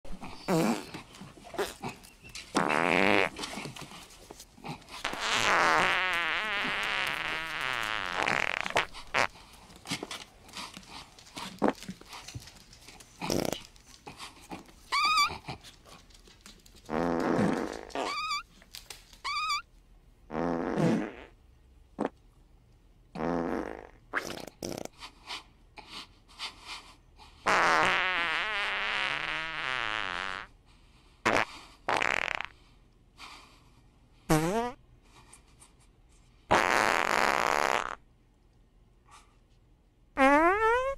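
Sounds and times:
fart sound effects: 0:00.4 - 0:01.0, 0:01.6 - 0:03.6, 0:05.0 - 0:09.3, 0:13.3 - 0:13.7, 0:16.9 - 0:18.4, 0:20.3 - 0:21.4, 0:22.0 - 0:22.2, 0:23.2 - 0:24.9, 0:27.5 - 0:30.5, 0:31.3 - 0:32.5, 0:34.3 - 0:34.8, 0:36.5 - 0:38.0, 0:40.2 - 0:40.9.

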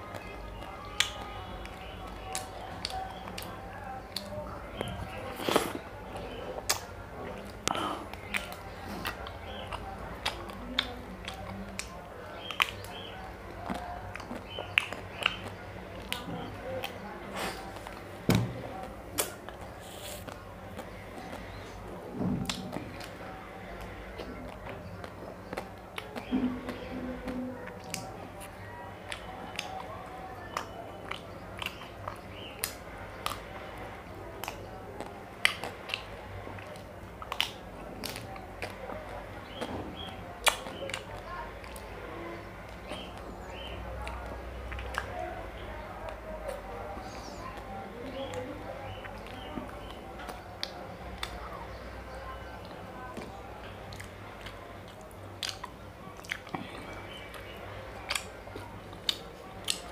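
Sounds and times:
man eating with lip smacks: 0:00.1 - 0:13.0, 0:18.8 - 0:21.5, 0:23.8 - 0:33.5, 0:34.4 - 0:41.8, 0:52.6 - 0:59.9
wet mouth sounds: 0:53.9 - 0:57.4.

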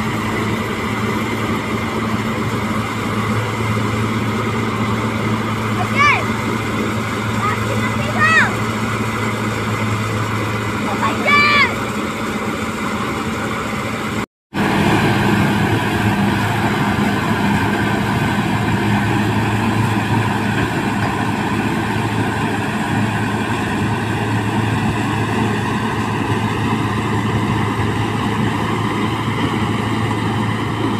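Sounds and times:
tractor diesel engine running: 0:00.0 - 0:30.9.

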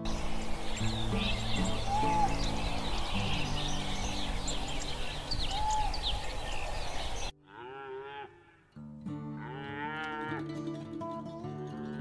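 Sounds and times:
soft guitar music: 0:00.0 - 0:07.0, 0:08.7 - 0:12.0
high chirps: 0:00.0 - 0:07.3
noisy outdoor background: 0:00.0 - 0:09.7
cow mooing: 0:07.4 - 0:08.6, 0:09.3 - 0:10.5.

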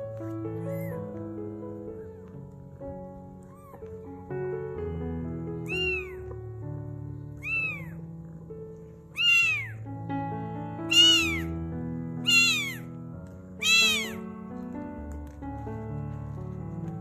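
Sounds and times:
background music with held notes: 0:00.0 - 0:17.0
kitten mewing: 0:00.6 - 0:01.0, 0:03.2 - 0:04.1, 0:05.6 - 0:06.3, 0:07.3 - 0:09.9, 0:10.9 - 0:11.5, 0:12.2 - 0:12.9, 0:13.6 - 0:14.2.

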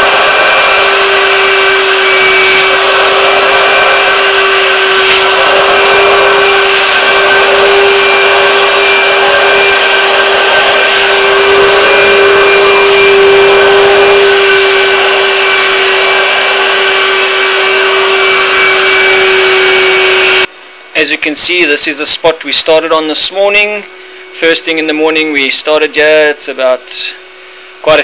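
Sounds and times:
vacuum motor whining: 0:00.0 - 0:20.5.

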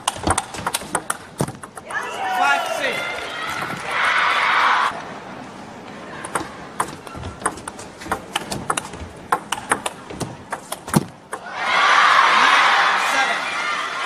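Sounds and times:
ping pong ball clicking: 0:00.0 - 0:01.9, 0:06.2 - 0:11.5
crowd cheering: 0:01.8 - 0:05.2, 0:11.4 - 0:14.0.

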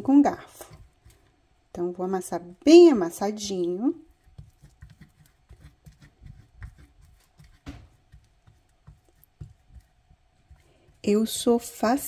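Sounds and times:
fork mashing beans on a plate: 0:00.0 - 0:01.3, 0:04.0 - 0:12.0.

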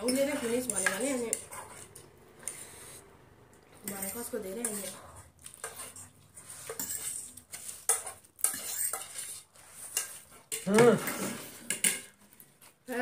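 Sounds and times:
forks scraping on plates: 0:03.8 - 0:12.2.

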